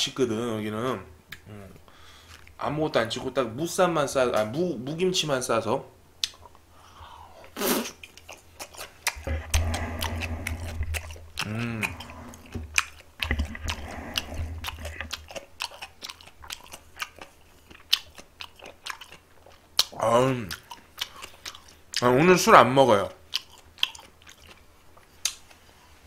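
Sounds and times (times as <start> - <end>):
wet chewing with mouth smacks: 7.9 - 22.1, 23.2 - 25.7.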